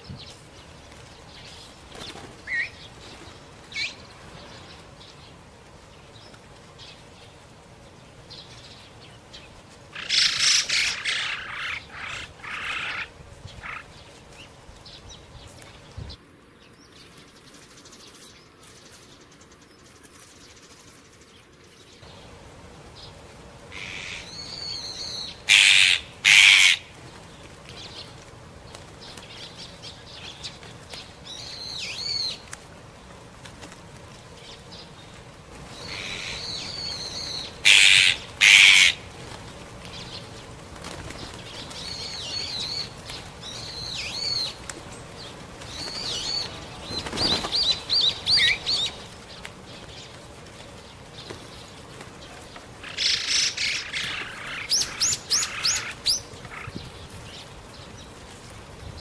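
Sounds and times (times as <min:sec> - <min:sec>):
small birds chirping: 0:00.0 - 0:59.0
harsh bird call bursts: 0:23.7 - 0:26.9, 0:35.8 - 0:39.1.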